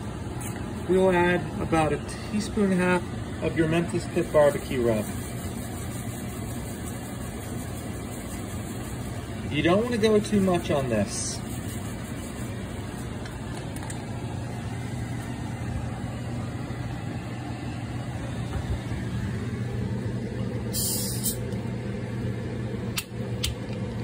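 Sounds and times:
low mechanical hum: 0:00.0 - 0:24.0
brief hiss: 0:20.7 - 0:21.4.

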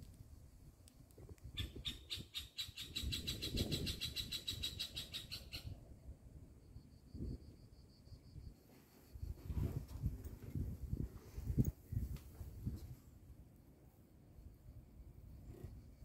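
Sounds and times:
wind rumble on microphone: 0:00.0 - 0:13.4
cicada singing: 0:01.5 - 0:05.8.

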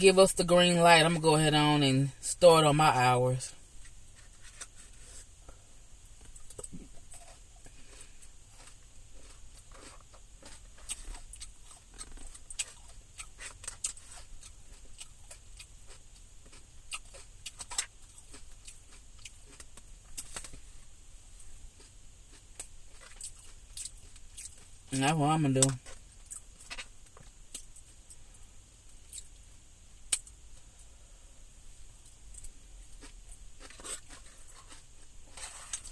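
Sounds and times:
chewing food: 0:06.2 - 0:20.6, 0:21.7 - 0:24.8, 0:25.6 - 0:28.2, 0:28.9 - 0:29.4, 0:32.1 - 0:35.9
mouth clicks and crackles: 0:06.2 - 0:20.6, 0:25.6 - 0:28.2.

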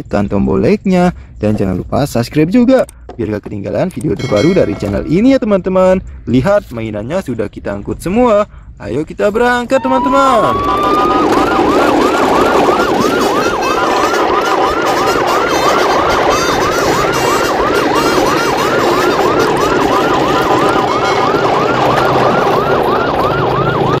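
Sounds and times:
steady rumbling noise: 0:00.0 - 0:23.5
electronic siren yelping: 0:09.6 - 0:24.0.

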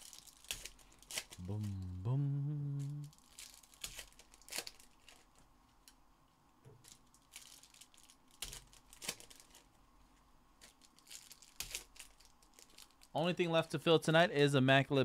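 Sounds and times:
foil wrappers ripping: 0:00.0 - 0:01.7, 0:03.1 - 0:05.4, 0:06.8 - 0:09.7, 0:10.6 - 0:13.2
foil wrappers crinkling: 0:00.0 - 0:01.8, 0:02.8 - 0:05.5, 0:06.8 - 0:09.8, 0:10.6 - 0:13.2.

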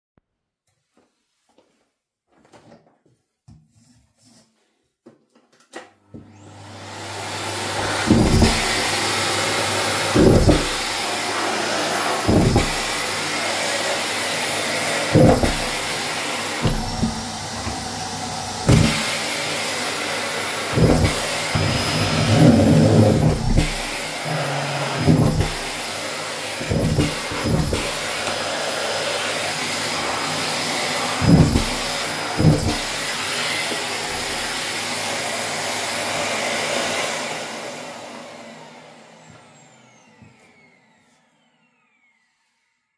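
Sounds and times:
vacuum cleaner running: 0:06.0 - 0:42.9
vacuum motor winding down: 0:06.2 - 0:42.8.

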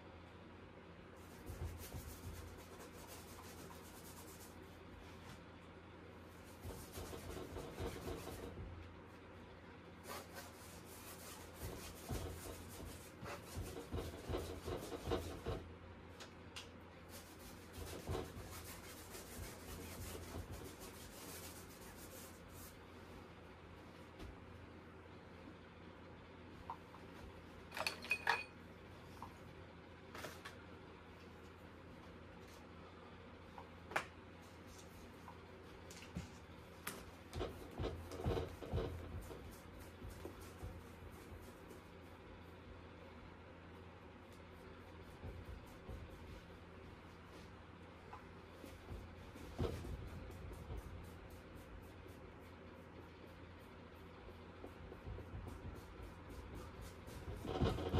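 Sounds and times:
paintbrush rasping on canvas: 0:01.2 - 0:04.6, 0:06.3 - 0:08.7, 0:10.0 - 0:15.6, 0:17.0 - 0:22.8, 0:37.0 - 0:42.6, 0:44.2 - 0:47.6, 0:48.5 - 0:57.9.

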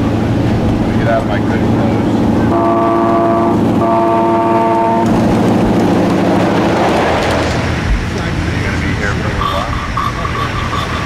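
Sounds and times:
train running noise: 0:00.0 - 0:11.0
locomotive horn blasts: 0:02.5 - 0:05.2.

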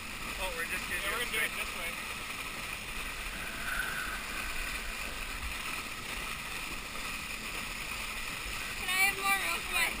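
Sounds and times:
water rushing under skis: 0:00.0 - 0:10.0.

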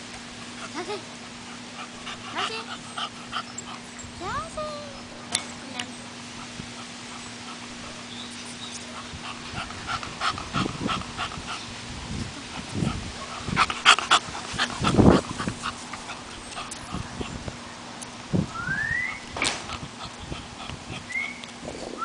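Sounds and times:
dog panting: 0:00.4 - 0:17.6, 0:19.5 - 0:21.4
low loud dog noise: 0:06.3 - 0:17.6, 0:19.1 - 0:22.0.

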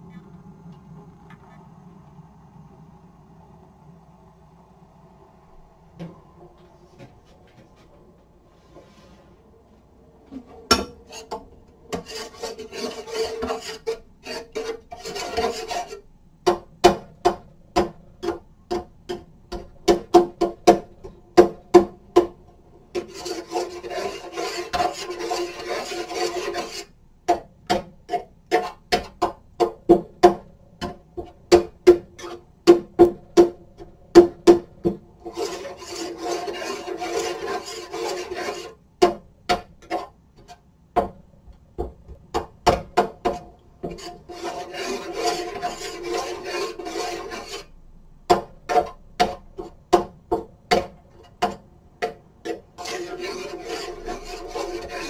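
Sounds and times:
utensil scraping in cooking pot: 0:10.3 - 0:40.7, 0:42.8 - 0:50.0, 0:50.7 - 0:55.0.

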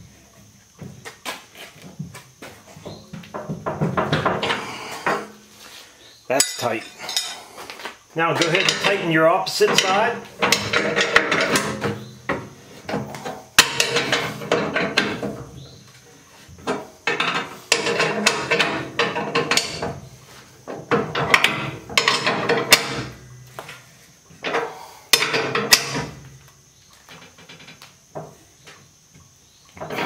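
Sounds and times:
sharp metal clanks: 0:06.3 - 0:07.4, 0:08.3 - 0:15.7, 0:20.9 - 0:23.4.

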